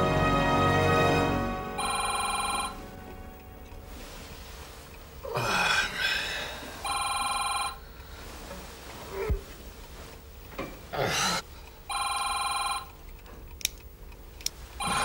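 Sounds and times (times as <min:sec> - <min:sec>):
telephone ringing: 0:01.7 - 0:03.4, 0:06.8 - 0:07.9, 0:11.9 - 0:13.0, 0:14.8 - 0:15.0.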